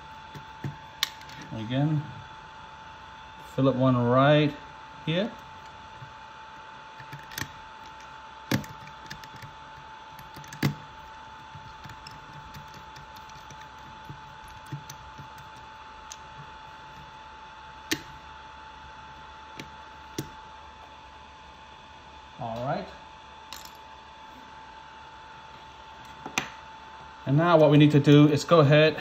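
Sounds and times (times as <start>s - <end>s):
faint high hum: 0.0s - 29.0s
screwdriver clicking on plastic: 7.0s - 17.1s.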